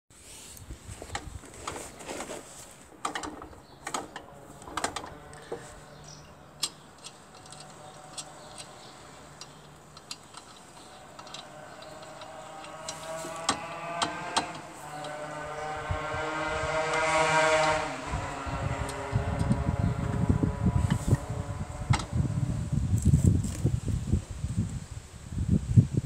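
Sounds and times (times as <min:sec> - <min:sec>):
faint motor drone: 0:10.6 - 0:22.9.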